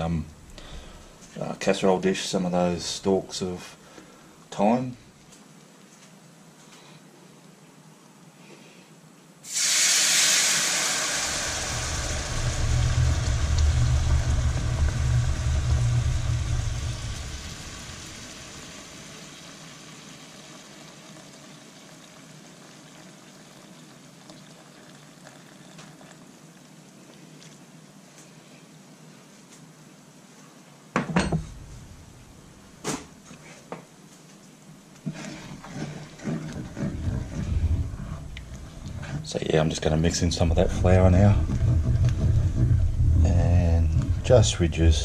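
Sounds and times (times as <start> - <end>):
loud sizzle and hiss in pan: 9.4 - 23.8
liquid pouring and boiling: 9.4 - 28.1, 31.4 - 33.0, 35.0 - 45.0.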